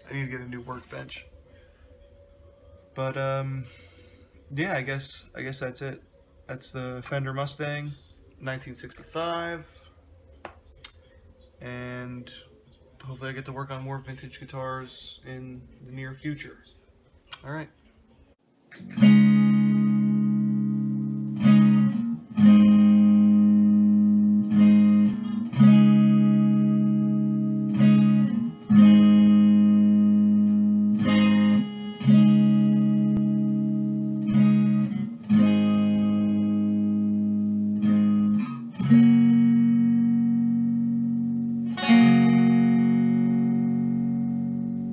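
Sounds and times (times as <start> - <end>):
slow guitar chords: 18.7 - 44.9.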